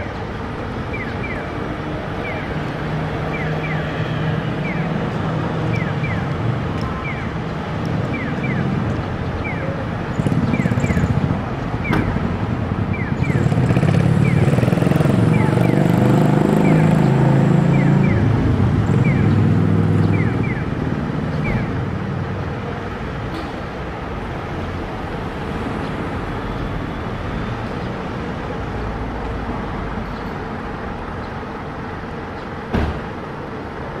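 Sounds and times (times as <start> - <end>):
bus approaching: 0.0 - 34.0
cars passing: 0.0 - 34.0
motor scooter passing: 10.1 - 11.4, 13.2 - 20.5.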